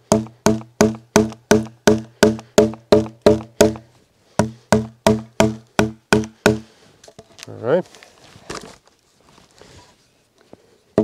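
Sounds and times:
mallet knocking wooden wedges: 0:00.0 - 0:06.7.

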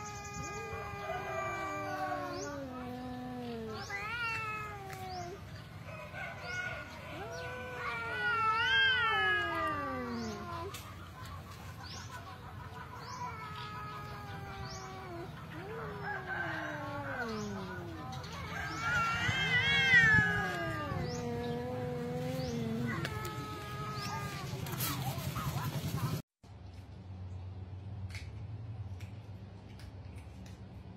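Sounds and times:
cats yowling: 0:00.0 - 0:11.2, 0:12.6 - 0:24.9.

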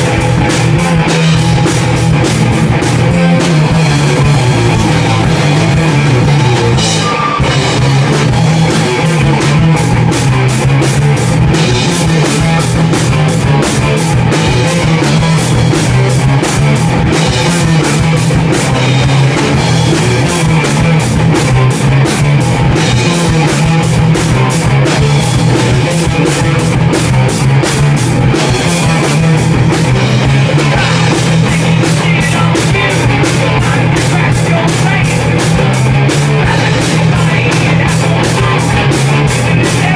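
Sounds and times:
drum kit: 0:00.0 - 0:39.9
electric bass: 0:00.0 - 0:39.9
electric guitar: 0:00.0 - 0:39.9.

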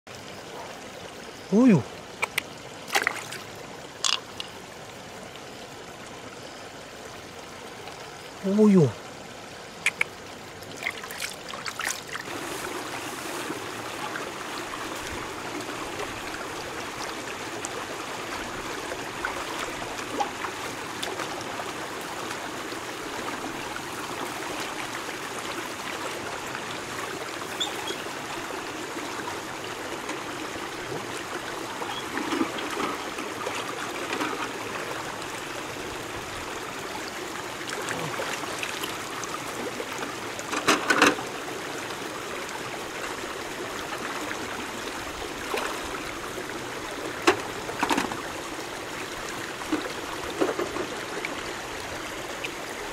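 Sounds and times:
stream trickling over rocks: 0:00.1 - 0:52.9
person wading splashes: 0:02.8 - 0:04.2, 0:10.6 - 0:15.0, 0:37.7 - 0:39.0.

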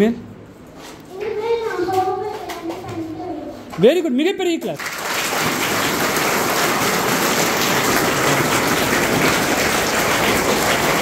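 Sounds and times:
children applauding: 0:04.7 - 0:11.0.

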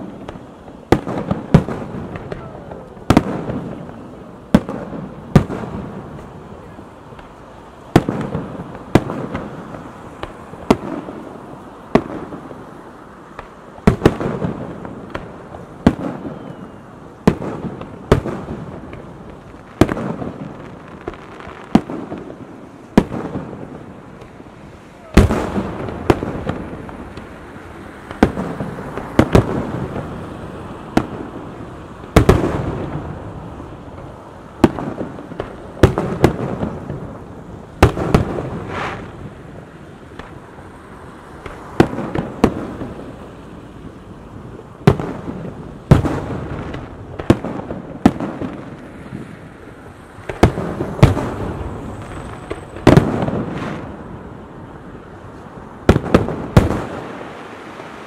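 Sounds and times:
firework bangs with echo: 0:00.0 - 0:12.7, 0:13.3 - 0:40.5, 0:41.3 - 0:49.6, 0:50.2 - 0:54.3, 0:55.8 - 0:57.9.

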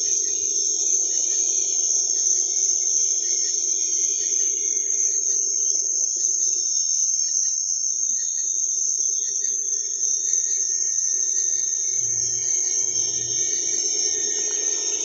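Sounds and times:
night insects chirping: 0:00.0 - 0:15.0
low whir: 0:11.7 - 0:15.0.

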